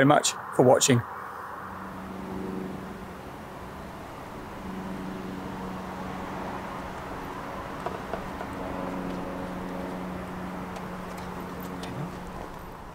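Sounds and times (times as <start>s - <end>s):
distant traffic hum: 0.0s - 12.9s
low droning engine tone: 0.0s - 12.9s
faint footsteps: 6.5s - 12.9s.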